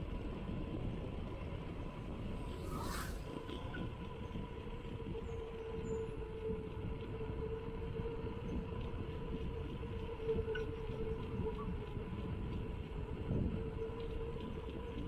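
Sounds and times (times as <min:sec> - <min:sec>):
bicycle tyre rumble on concrete: 0:00.0 - 0:15.0
wind buffeting microphone: 0:00.0 - 0:15.0
steady hum: 0:01.9 - 0:03.8.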